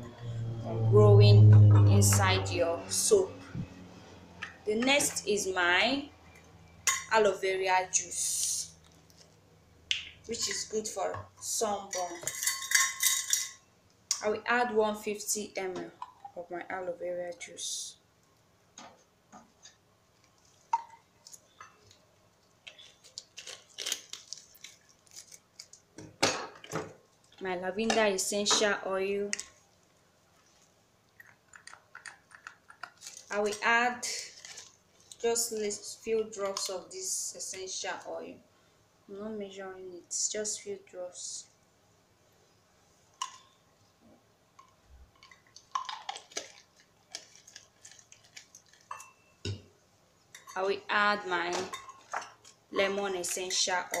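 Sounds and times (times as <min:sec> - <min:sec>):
utensils clinking on metal pot: 0:11.8 - 0:13.6, 0:48.7 - 0:49.4, 0:50.3 - 0:50.7, 0:51.5 - 0:54.0.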